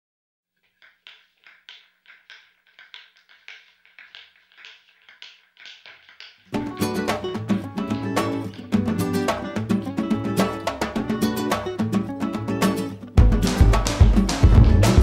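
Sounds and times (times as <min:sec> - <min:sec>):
music: 0:06.4 - 0:15.0.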